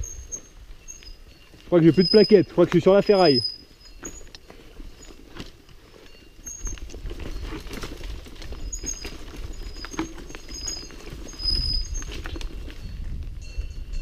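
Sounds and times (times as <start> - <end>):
disc brakes squealing: 0.0 - 5.4, 6.1 - 12.9
bike rattling over rocks: 0.0 - 13.2
wind rumbling on microphone: 6.5 - 14.0.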